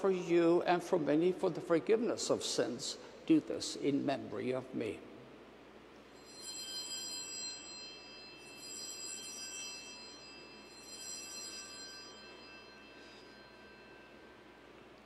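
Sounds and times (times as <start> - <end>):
small altar bells jangling: 6.2 - 14.7.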